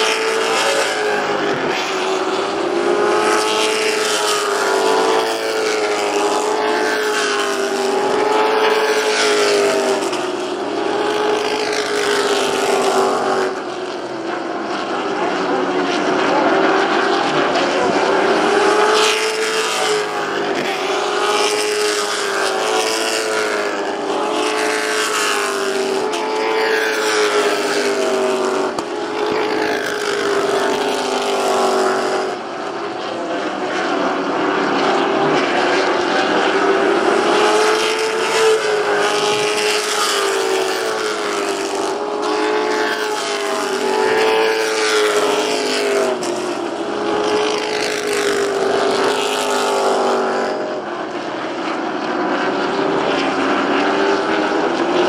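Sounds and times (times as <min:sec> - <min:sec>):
racing car engines: 0:00.0 - 0:55.0.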